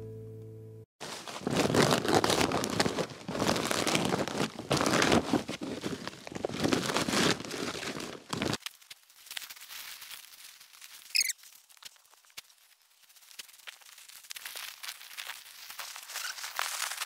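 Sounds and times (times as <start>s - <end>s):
compost spilling: 1.0s - 8.6s
hands rustling membrane: 1.0s - 17.0s
plastic bag fabric crinkling: 1.0s - 17.0s.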